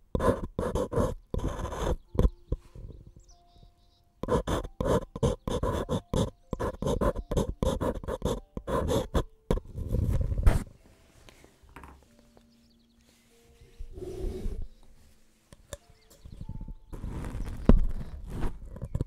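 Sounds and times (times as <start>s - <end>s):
scraping strokes: 13.2s - 14.8s, 16.9s - 19.0s.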